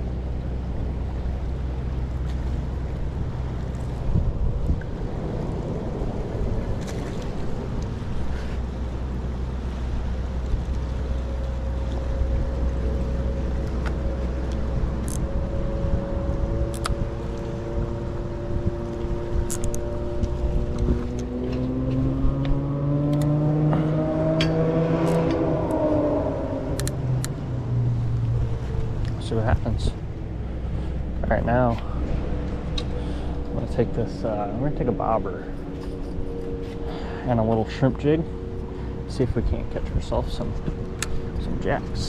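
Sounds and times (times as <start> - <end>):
low rumble of traffic: 0.0 - 42.0
engine speeding up: 9.3 - 42.0.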